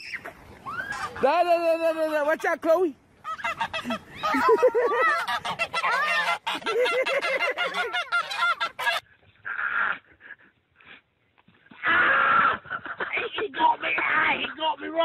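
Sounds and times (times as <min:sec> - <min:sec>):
goose honking: 0:03.2 - 0:09.0.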